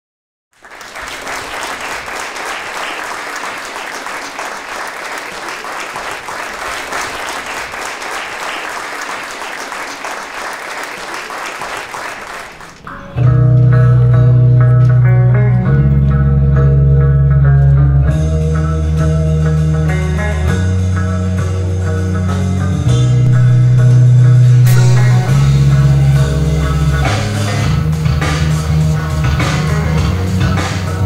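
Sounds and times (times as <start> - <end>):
audience applauding: 0.6 - 13.2
loud music with heavy bass: 18.2 - 31.0.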